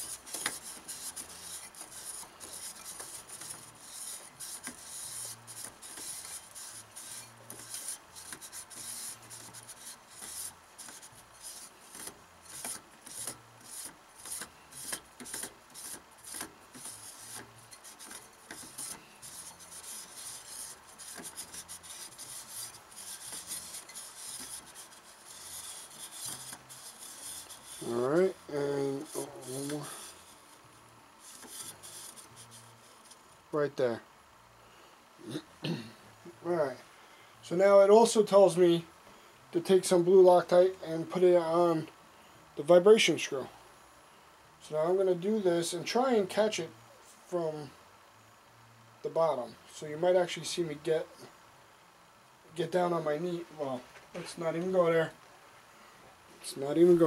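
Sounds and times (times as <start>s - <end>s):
palm scraping on metal rail: 0.0s - 30.6s, 31.2s - 33.2s.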